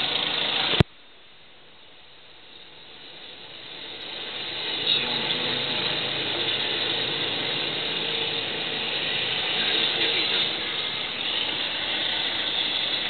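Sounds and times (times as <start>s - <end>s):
helicopter rotor and engine: 0.0s - 0.8s, 2.3s - 13.0s.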